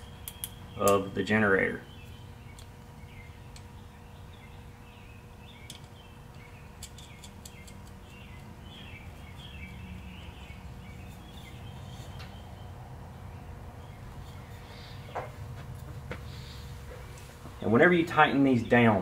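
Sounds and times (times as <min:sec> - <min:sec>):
steady low hum: 0:00.0 - 0:19.0
small clicks of wire terminal: 0:00.2 - 0:01.0, 0:06.8 - 0:08.0.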